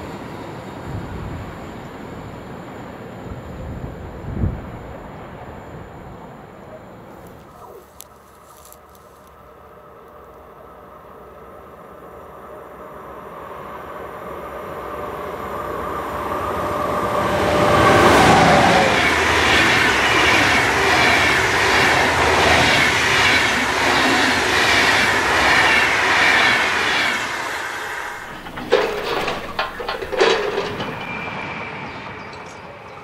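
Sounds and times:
electric locomotive passing: 0:00.0 - 0:07.5, 0:09.4 - 0:33.0
train wheels clattering: 0:17.2 - 0:32.6.

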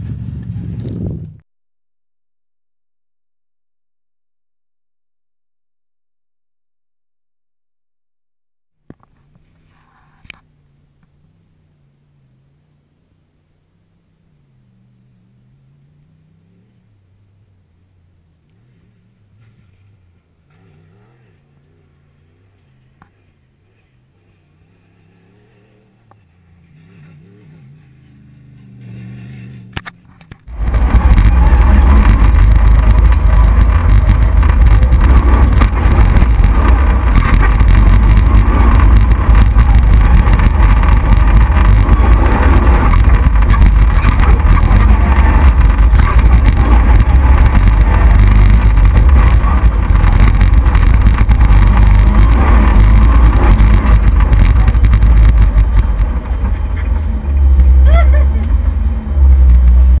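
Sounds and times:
rally car engine roaring: 0:08.8 - 1:00.0
wind roaring: 0:30.5 - 1:00.0.

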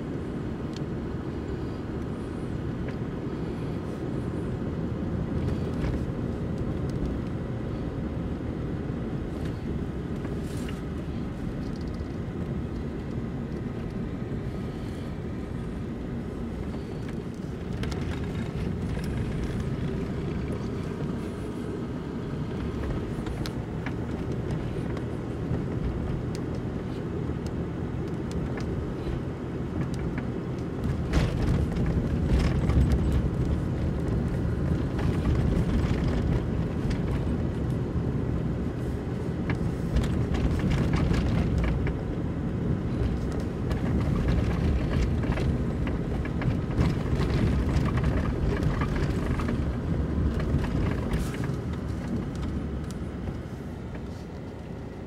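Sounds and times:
car engine and tyres rumbling: 0:00.0 - 0:55.0
knocks from rough road: 0:30.8 - 0:33.7.

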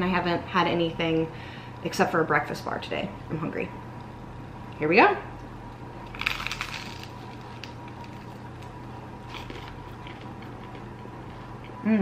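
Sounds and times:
teeth crunching toast: 0:06.1 - 0:11.0.

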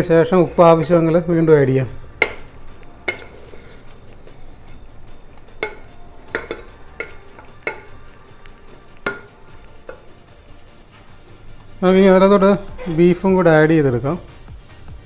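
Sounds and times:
ladle stirring in metal pot: 0:01.2 - 0:11.6
ladle knocking on pot: 0:02.2 - 0:03.6, 0:05.6 - 0:08.2, 0:09.0 - 0:10.2.

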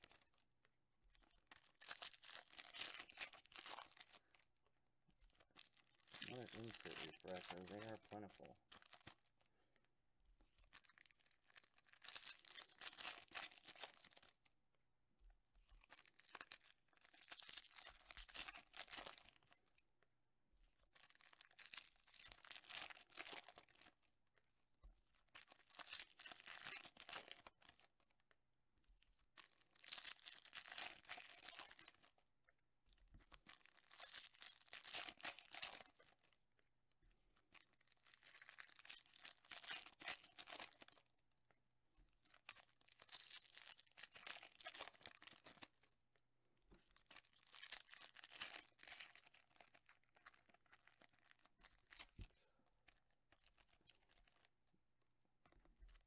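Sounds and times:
foil wrappers tearing and crinkling: 0:01.6 - 0:04.2, 0:05.6 - 0:09.2, 0:15.9 - 0:19.5, 0:21.0 - 0:23.9, 0:25.4 - 0:27.9, 0:29.4 - 0:32.1, 0:33.6 - 0:36.2, 0:38.0 - 0:41.0, 0:42.5 - 0:45.8, 0:46.9 - 0:52.2.

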